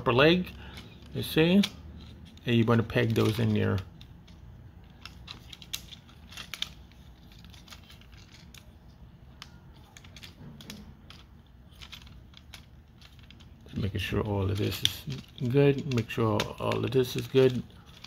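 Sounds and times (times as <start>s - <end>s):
plastic toy parts clicking: 0.0s - 18.0s.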